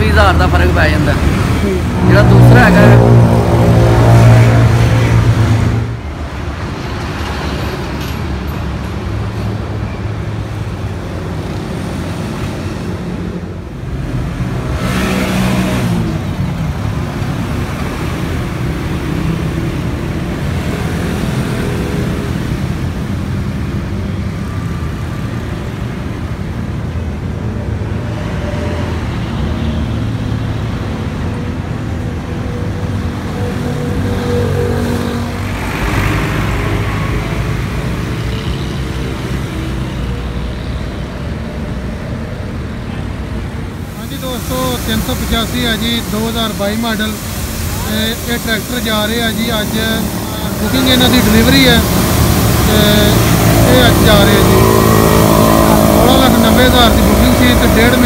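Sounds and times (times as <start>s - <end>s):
vehicle passing: 0.0s - 7.5s, 27.8s - 58.0s
road traffic noise: 0.0s - 58.0s
vehicle engines running: 0.0s - 58.0s.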